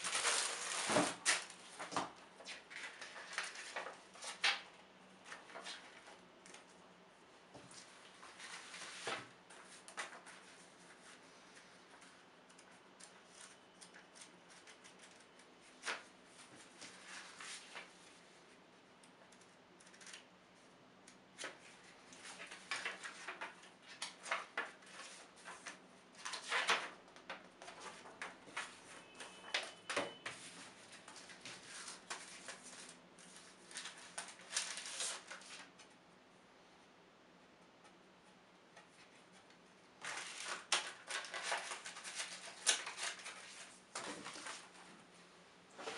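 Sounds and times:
pages flipping: 0:00.0 - 0:04.6, 0:07.7 - 0:18.0, 0:21.4 - 0:35.9, 0:40.0 - 0:44.8
paper rustling: 0:00.0 - 0:06.7, 0:07.6 - 0:18.2, 0:21.4 - 0:35.9, 0:40.0 - 0:44.9.

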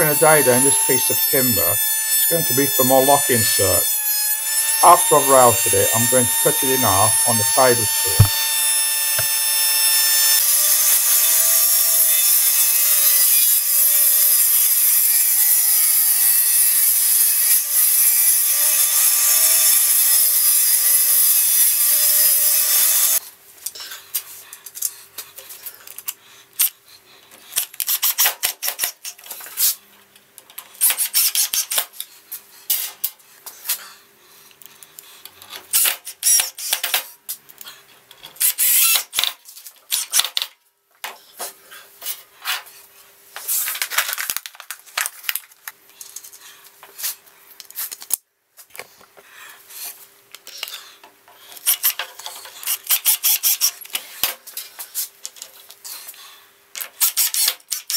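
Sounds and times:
router whining: 0:00.0 - 0:16.8.

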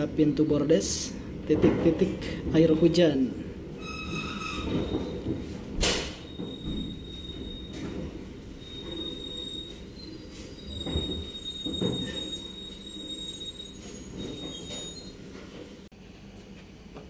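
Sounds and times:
train brakes squealing: 0:03.8 - 0:05.3, 0:06.0 - 0:15.4.

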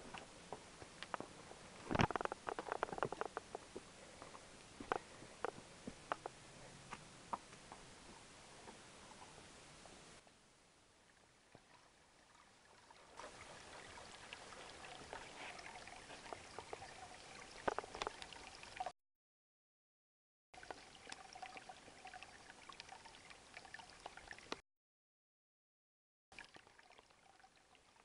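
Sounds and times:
stream trickling over rocks: 0:00.1 - 0:06.4, 0:11.0 - 0:18.9, 0:20.6 - 0:24.6, 0:26.3 - 0:28.0.

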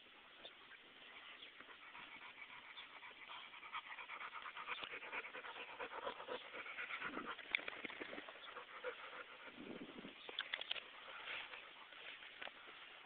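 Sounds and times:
dog panting: 0:01.5 - 0:09.6.

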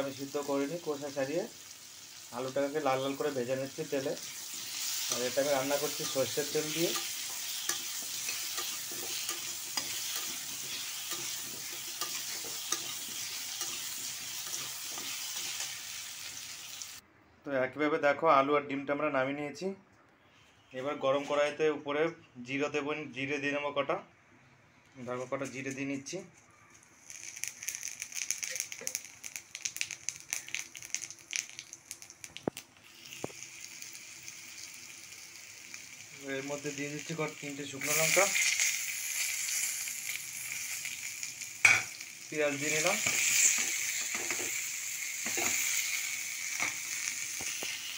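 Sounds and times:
potatoes sizzling in hot oil: 0:00.0 - 0:17.0, 0:26.8 - 0:47.9
spatula scraping a pan: 0:04.2 - 0:15.8.

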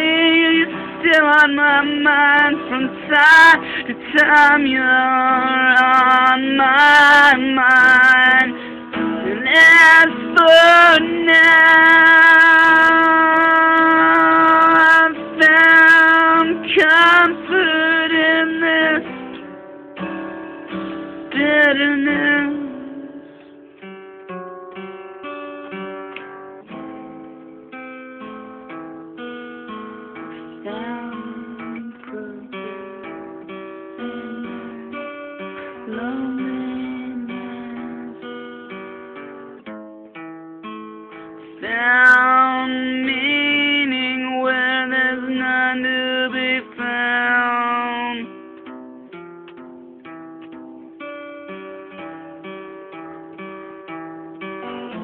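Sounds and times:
man singing with vibrato: 0:00.0 - 0:19.5, 0:21.2 - 0:23.4, 0:30.6 - 0:38.2, 0:41.6 - 0:48.4, 0:54.7 - 0:55.0
acoustic guitar picking notes: 0:00.0 - 0:55.0.

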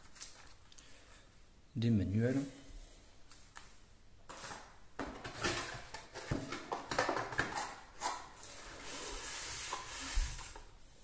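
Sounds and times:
cardboard and foam scraping: 0:07.5 - 0:10.6.

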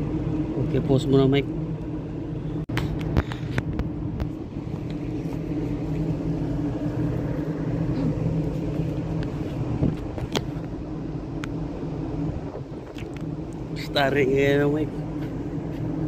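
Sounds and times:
ship engines droning: 0:00.0 - 0:16.0.

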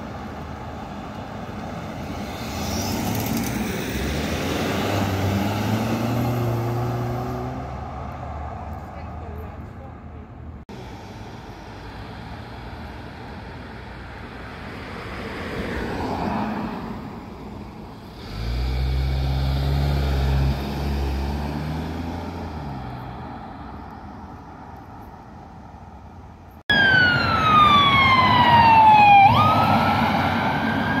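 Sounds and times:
ambulance siren wailing: 0:26.7 - 0:31.0.

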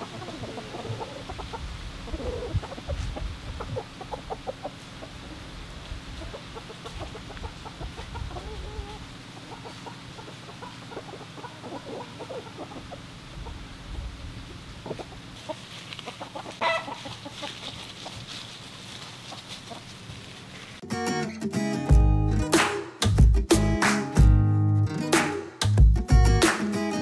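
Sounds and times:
chicken wavering call: 0:00.0 - 0:18.2
chickens clucking: 0:00.0 - 0:20.8.

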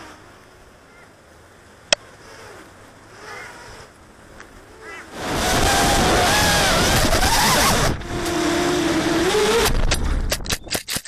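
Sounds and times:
quadcopter motors whining: 0:00.0 - 0:01.1, 0:01.9 - 0:10.1
sharp cracks: 0:09.5 - 0:11.0.

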